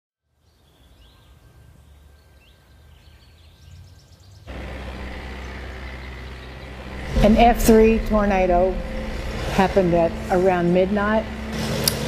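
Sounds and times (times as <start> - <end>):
low rumble: 4.5 - 12.0
steady wind noise: 6.7 - 12.0.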